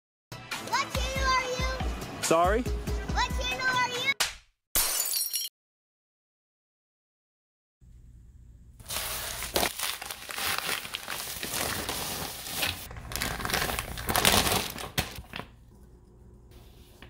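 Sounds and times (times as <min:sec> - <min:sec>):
paper mailer tearing: 0:08.8 - 0:15.2
foil bag crinkling: 0:08.8 - 0:15.5.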